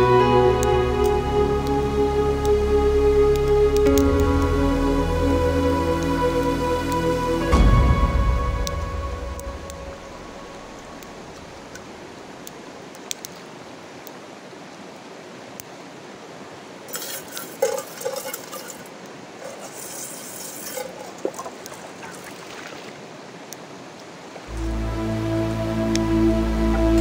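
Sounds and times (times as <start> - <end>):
stream running over stones: 0.0 - 27.0
metal pot splashing in water: 16.9 - 22.9.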